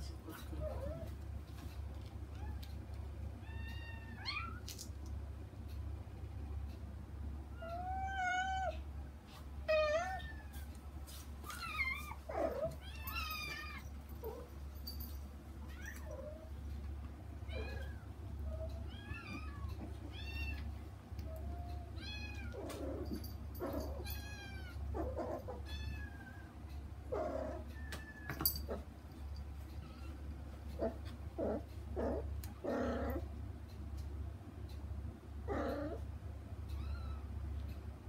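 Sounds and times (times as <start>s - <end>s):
low steady hum: 0.0s - 38.0s
kittens meowing: 17.4s - 23.1s.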